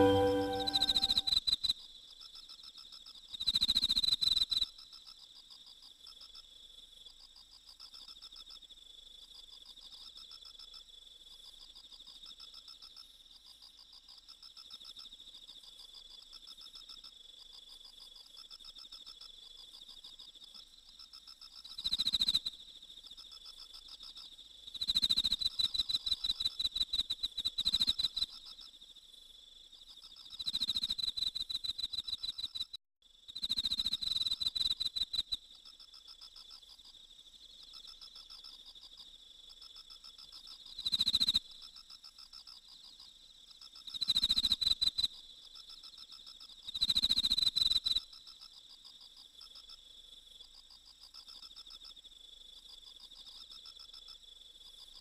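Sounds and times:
rapid cricket chirping: 0:08.8 - 0:55.0.

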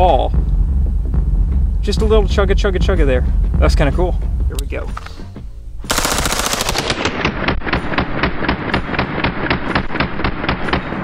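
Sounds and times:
automatic rifle burst: 0:05.9 - 0:07.4.

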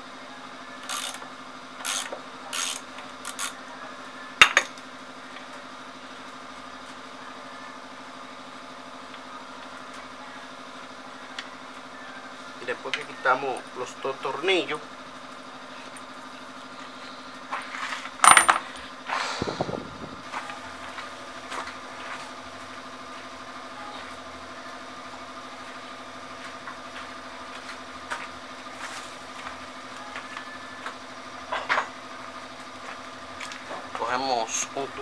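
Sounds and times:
steady low hum: 0:00.0 - 0:35.0
metal bolts clinking on hard ground: 0:18.1 - 0:18.8.

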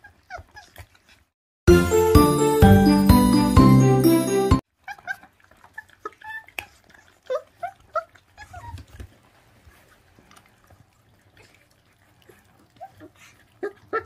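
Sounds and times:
intro jingle music: 0:01.7 - 0:04.6
chewing clicks: 0:05.4 - 0:07.2.

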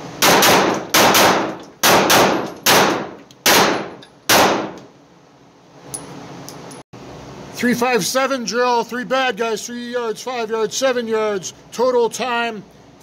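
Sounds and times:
pistol shots with echo: 0:00.2 - 0:04.8.

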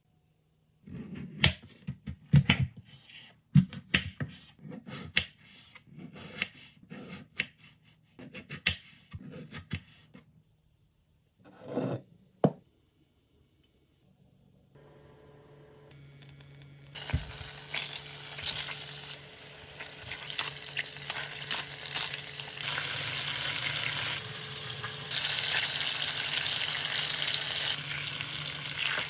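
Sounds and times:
knife cutting on wooden board: 0:11.5 - 0:12.0.

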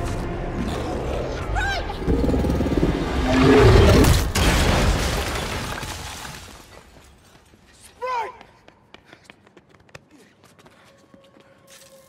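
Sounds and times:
deep creature roar: 0:00.6 - 0:04.2.

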